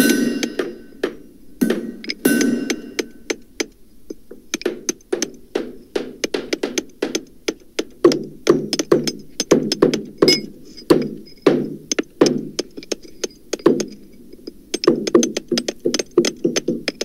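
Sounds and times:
hammer blows with dull ring: 0.0 - 3.7, 4.6 - 14.1.

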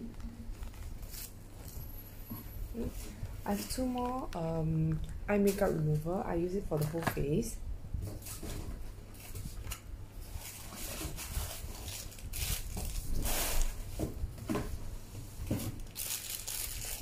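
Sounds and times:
steady low hum: 0.0 - 17.0
packaging rustling: 0.5 - 1.8, 8.1 - 14.0, 15.5 - 17.0.

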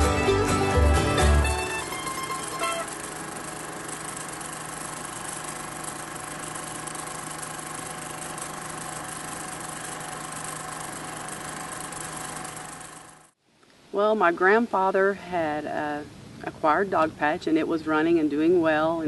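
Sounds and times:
machine humming: 0.0 - 13.3
constant hiss: 0.3 - 19.0.

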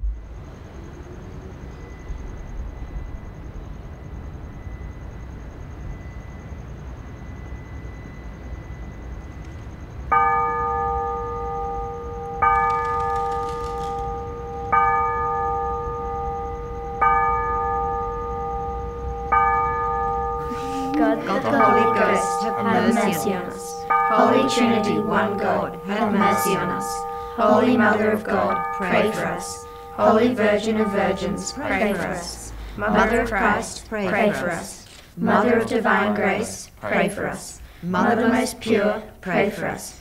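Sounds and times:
bell tolling: 10.1 - 36.5.

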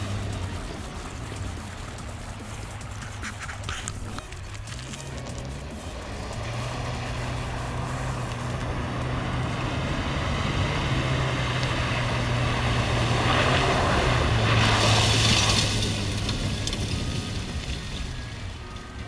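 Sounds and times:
car engine hum: 0.0 - 19.0.

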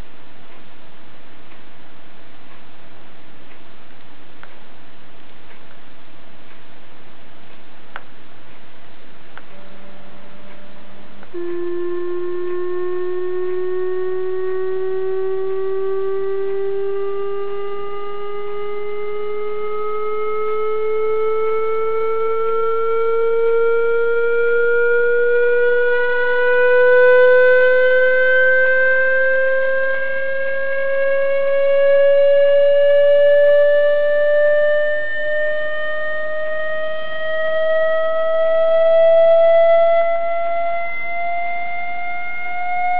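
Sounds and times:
electronic test tone rising: 9.5 - 42.9.

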